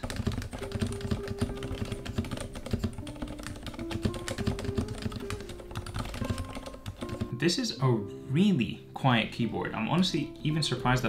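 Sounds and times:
soft mechanical keyboard typing: 0:00.0 - 0:07.4.

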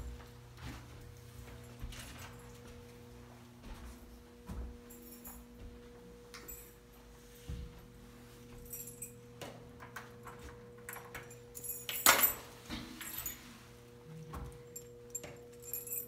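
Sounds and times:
keys jingling: 0:04.8 - 0:05.7, 0:08.5 - 0:13.5, 0:14.5 - 0:16.0.

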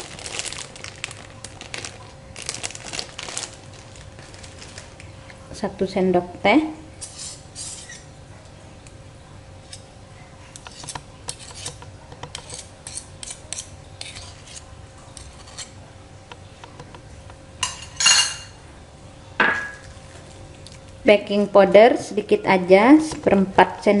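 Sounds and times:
metal spoon clinking on glass bowl: 0:17.6 - 0:18.5.

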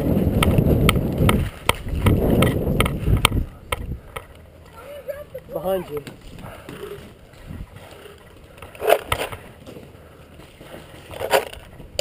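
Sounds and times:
moving through dry grass: 0:04.7 - 0:12.0.

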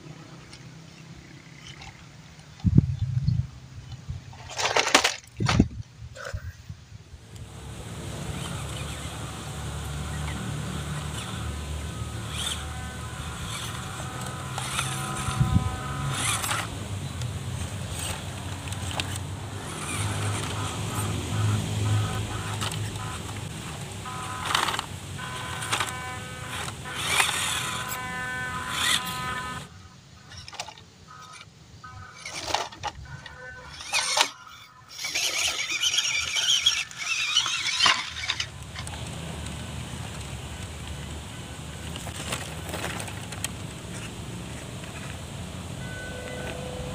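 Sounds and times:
steady low rumble: 0:02.7 - 0:04.3
tyres scraping on dirt: 0:03.8 - 0:06.6, 0:07.2 - 0:46.9
small electric motors whining: 0:07.2 - 0:46.9.

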